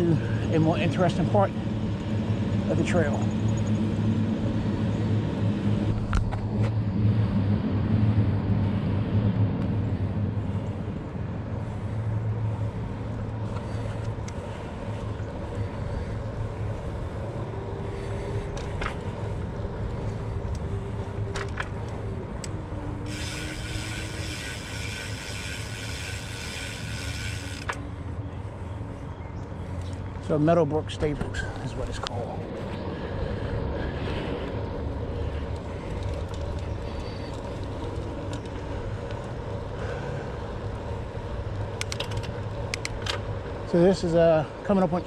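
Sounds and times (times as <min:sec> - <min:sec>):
bike tyre rumble: 0:00.0 - 0:29.0, 0:29.6 - 0:45.0.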